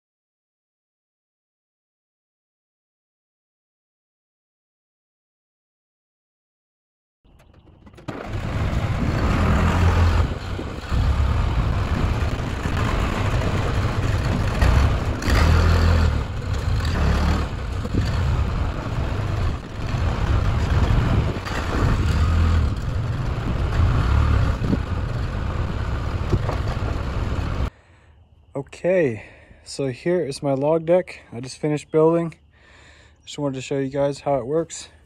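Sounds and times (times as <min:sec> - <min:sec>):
tractor engine running: 0:07.3 - 0:27.7.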